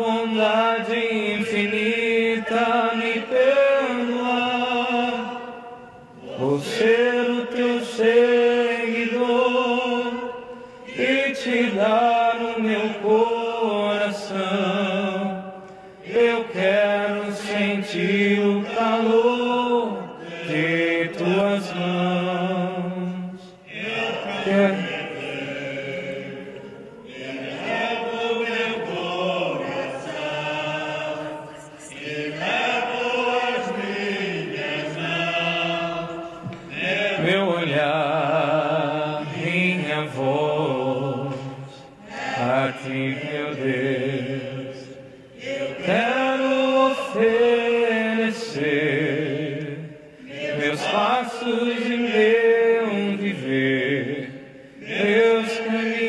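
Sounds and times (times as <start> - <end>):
voices singing a hymn: 0.0 - 56.0.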